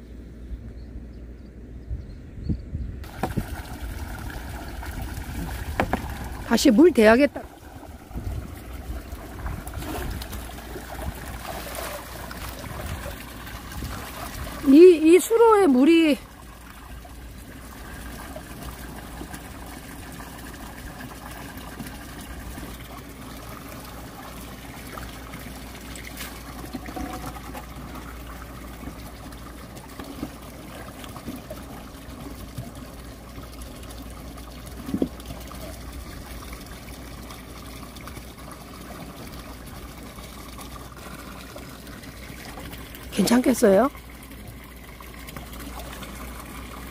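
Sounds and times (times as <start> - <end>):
water splashing around legs: 3.0 - 16.1
water running through channel: 3.0 - 46.9.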